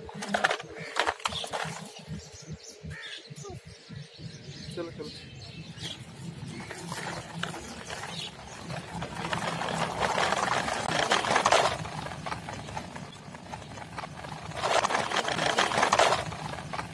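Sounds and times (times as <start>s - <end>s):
plastic toy wheels rattling on paving: 0.0s - 2.4s, 5.8s - 16.9s.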